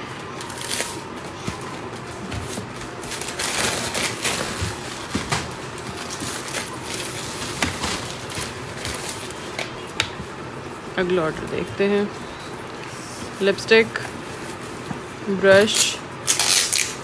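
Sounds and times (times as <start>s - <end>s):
plastic bag crinkling: 0.3s - 10.0s.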